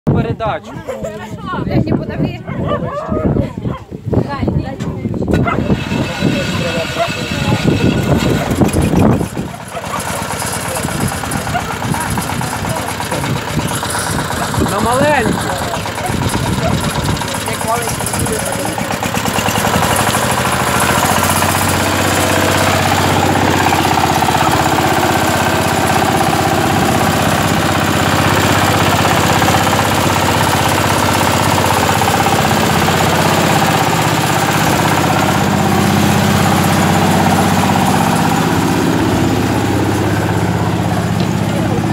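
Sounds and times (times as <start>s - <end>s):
tractor engine clattering: 4.7s - 41.9s.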